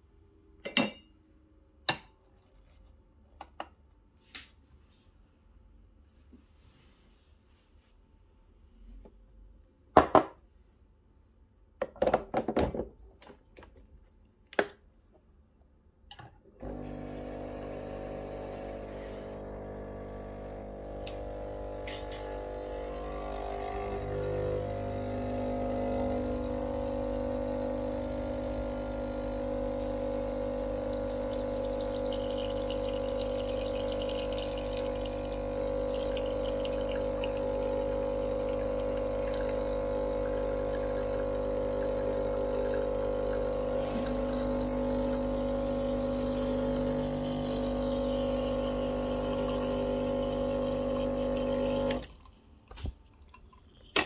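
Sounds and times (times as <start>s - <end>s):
espresso machine pump humming: 16.6s - 52.9s.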